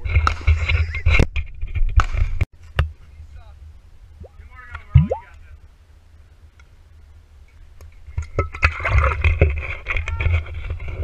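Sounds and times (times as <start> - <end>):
liquid glugging from bottle: 5.0 - 5.2.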